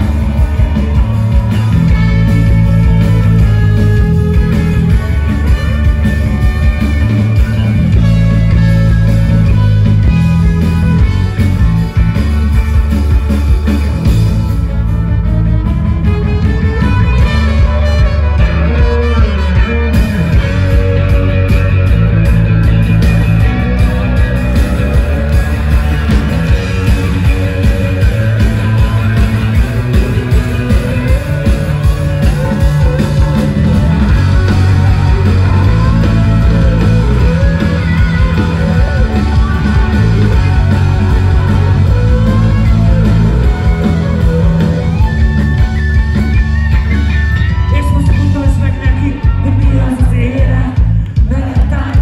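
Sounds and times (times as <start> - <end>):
drums: 0.0 - 52.0
electric guitars: 0.0 - 52.0
heavy bass: 0.0 - 52.0
person singing: 47.5 - 52.0.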